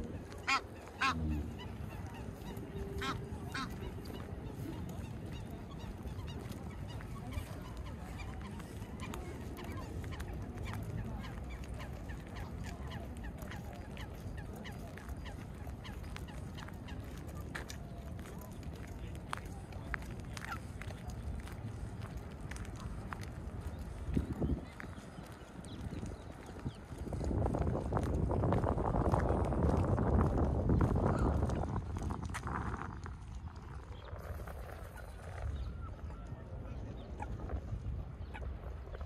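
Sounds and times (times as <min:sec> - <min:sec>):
geese honking: 0:00.2 - 0:07.9.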